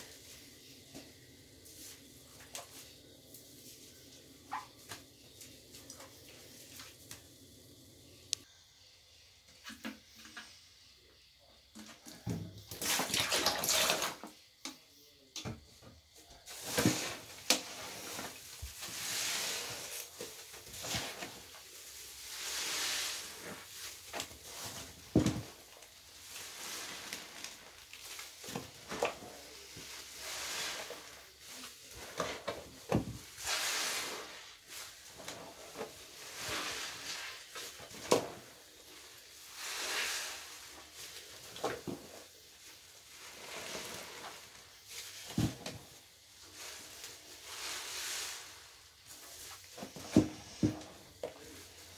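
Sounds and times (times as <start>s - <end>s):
wet sponges squelching: 16.5s - 51.9s.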